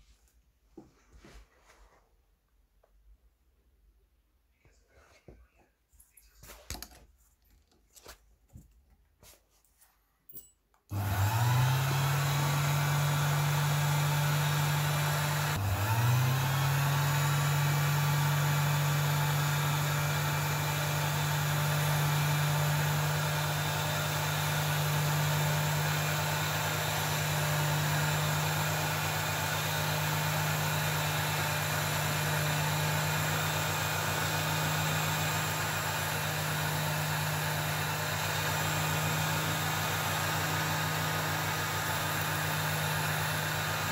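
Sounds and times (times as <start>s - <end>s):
drill bit boring: 10.9s - 43.9s
lathe motor whining: 10.9s - 43.9s.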